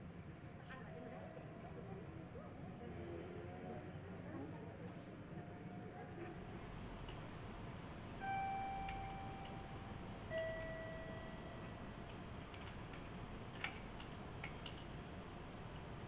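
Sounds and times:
two-tone attention chime: 8.2s - 11.8s.

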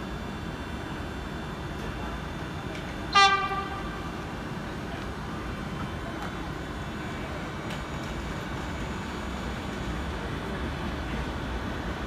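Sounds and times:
locomotive horn blast: 3.1s - 4.1s.

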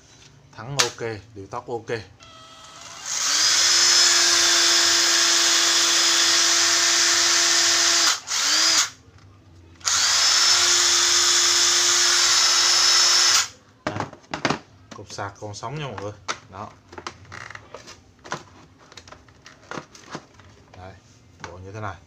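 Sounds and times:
impact driver motor whine: 2.2s - 8.9s, 9.8s - 13.5s.

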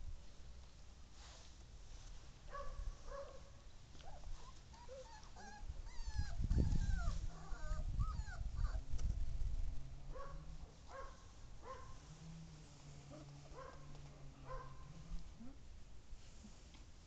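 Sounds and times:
puppies whimpering: 4.7s - 8.9s.

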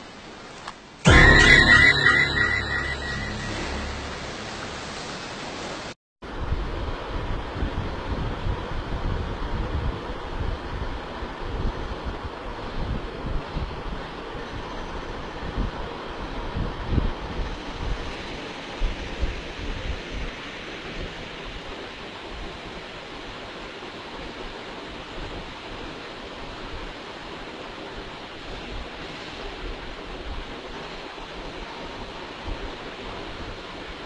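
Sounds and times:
steady rushing noise: 1.1s - 7.2s.

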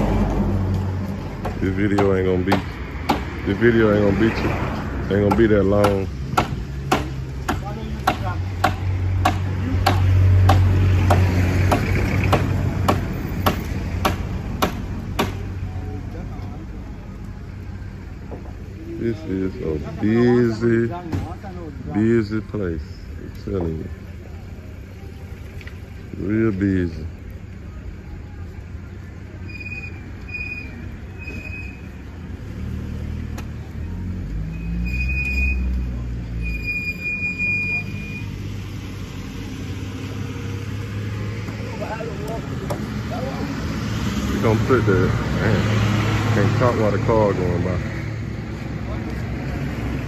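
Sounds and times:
traffic rumble: 0.0s - 50.0s
vehicle engine hum: 0.0s - 50.0s
hammer striking wooden boards: 1.4s - 3.3s, 5.2s - 15.4s.

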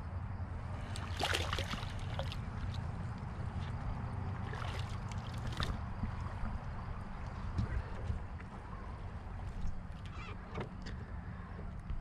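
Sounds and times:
fish splashing at water surface: 0.8s - 2.9s, 4.4s - 5.8s.

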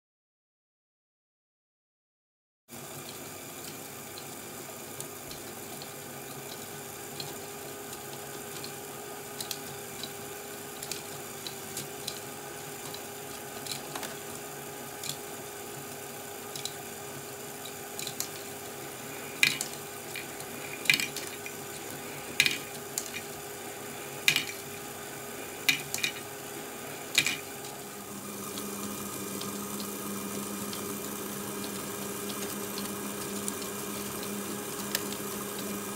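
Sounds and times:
motor hum: 2.7s - 35.9s
plastic balls clicking and rattling: 17.6s - 25.0s, 25.6s - 26.4s, 27.0s - 27.8s.

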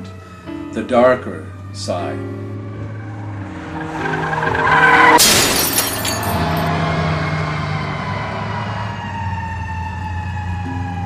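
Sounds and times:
falling siren-like wail: 0.0s - 0.7s, 1.4s - 11.0s
car crash smash: 4.5s - 6.7s.

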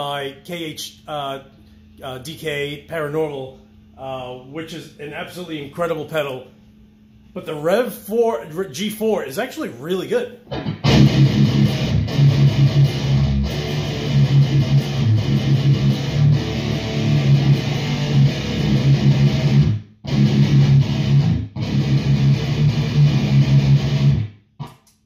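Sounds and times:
distorted electric guitar riffing: 10.4s - 24.8s.

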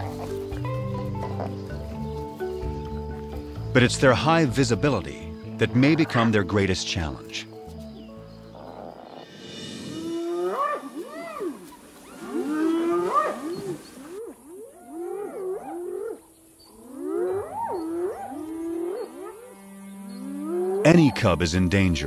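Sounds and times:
hyenas whooping: 8.6s - 19.5s.

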